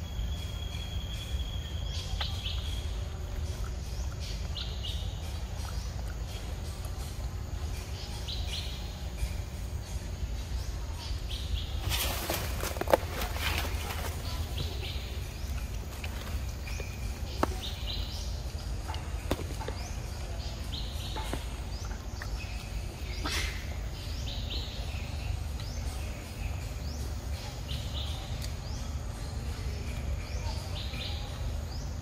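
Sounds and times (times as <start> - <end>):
steady low rumble: 0.0 - 32.0.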